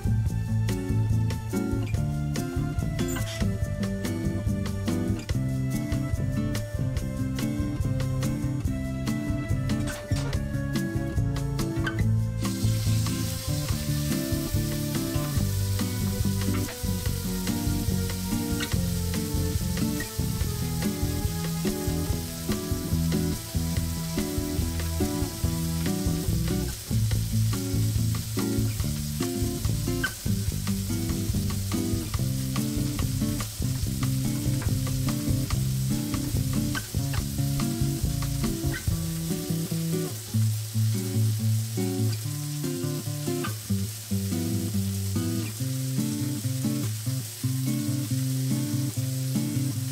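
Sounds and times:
music with plucked notes: 0:00.0 - 0:49.9
steak sizzling in a pan: 0:00.1 - 0:49.9
oil popping: 0:11.6 - 0:49.4.

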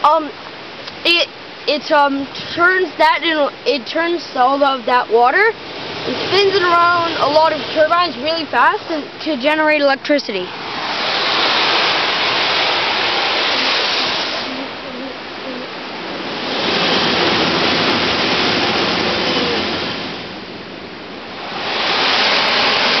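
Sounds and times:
air turbine roaring: 0:05.6 - 0:23.0.

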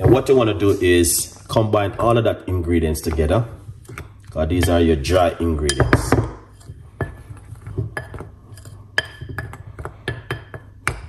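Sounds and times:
utensil clinking against bowl: 0:03.0 - 0:11.0.

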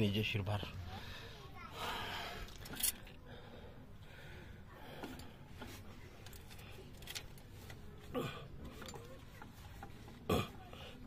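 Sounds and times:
faint clicks of metal parts: 0:02.4 - 0:03.2, 0:04.8 - 0:11.0.

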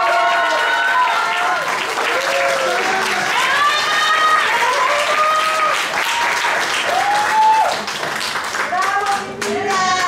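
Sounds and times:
cheering whoops: 0:00.0 - 0:07.9
audience applauding: 0:00.0 - 0:10.0.

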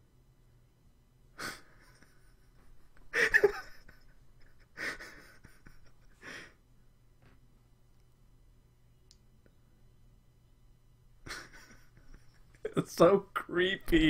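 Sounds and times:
man laughing wheezily: 0:01.4 - 0:06.6, 0:11.2 - 0:12.7.

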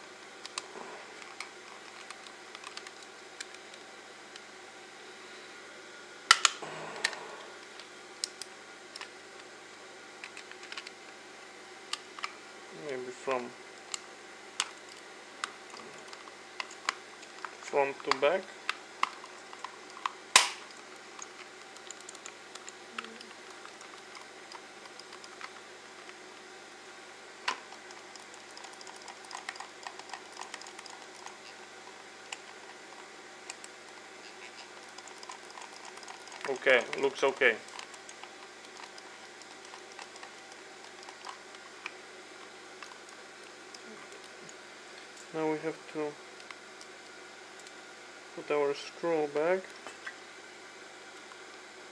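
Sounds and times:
plastic mouse shell snapping shut: 0:20.4 - 0:20.6.

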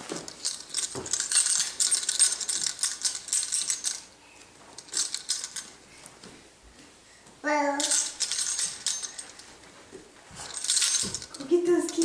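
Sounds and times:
keys jangling: 0:00.0 - 0:04.1, 0:04.7 - 0:05.8, 0:07.8 - 0:09.5, 0:10.4 - 0:12.0.

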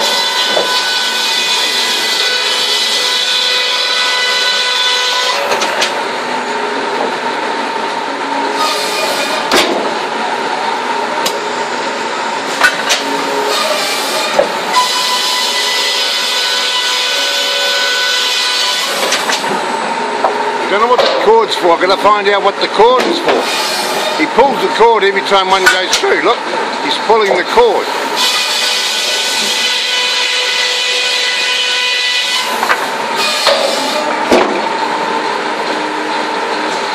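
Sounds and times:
circular saw whining: 0:10.2 - 0:19.3, 0:27.6 - 0:36.9.

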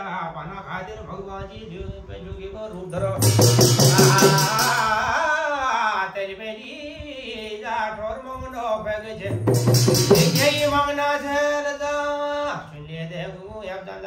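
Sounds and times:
man singing devotional song: 0:00.0 - 0:14.0
drum and percussion: 0:03.0 - 0:05.4, 0:09.2 - 0:11.5.

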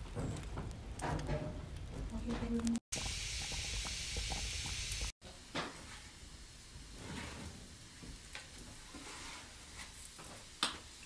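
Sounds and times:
fire crackles: 0:00.0 - 0:11.0
wood fire hissing: 0:02.9 - 0:11.0.

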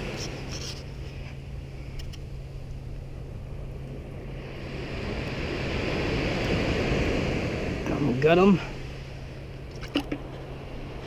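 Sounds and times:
beach surf: 0:00.0 - 0:11.0
wind rumble on microphone: 0:00.0 - 0:11.0.

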